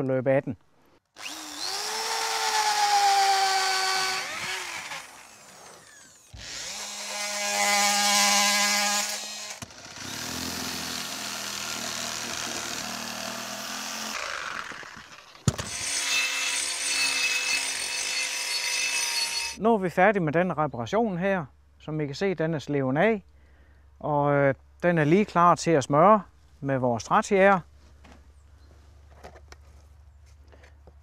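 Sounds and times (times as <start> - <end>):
power drill boring into wood: 1.2 - 19.6
reciprocating saw cutting wood: 1.2 - 19.6.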